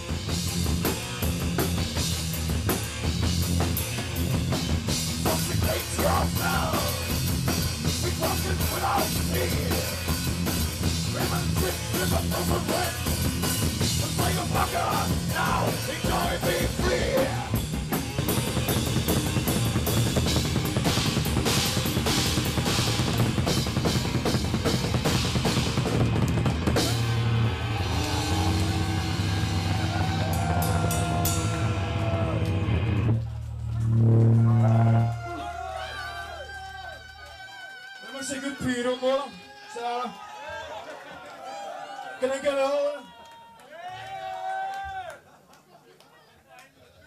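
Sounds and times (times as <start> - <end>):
fast heavy metal drumming: 0.0 - 33.2
heavy metal guitars and bass: 0.0 - 36.3.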